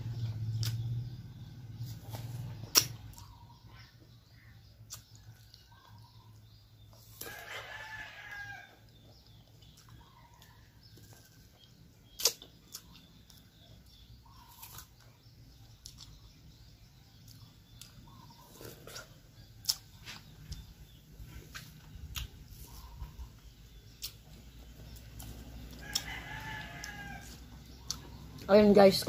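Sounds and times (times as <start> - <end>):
rooster crowing: 7.2 - 8.8, 25.8 - 27.5
mouth sounds of eating: 17.2 - 29.0.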